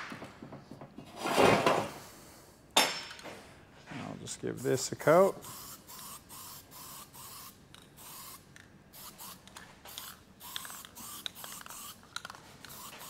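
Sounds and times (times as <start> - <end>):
aerosol can spraying: 4.7 - 8.4, 9.0 - 12.0, 12.6 - 13.0.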